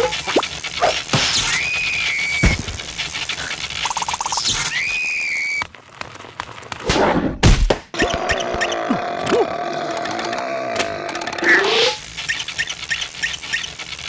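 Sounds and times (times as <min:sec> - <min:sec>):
steady hum: 0:00.0 - 0:04.6
small squeaks and ticks: 0:00.0 - 0:06.7, 0:09.6 - 0:14.0
high-pitched cartoon squeal: 0:01.3 - 0:02.6, 0:04.5 - 0:05.6
loud thumps: 0:02.3 - 0:02.9.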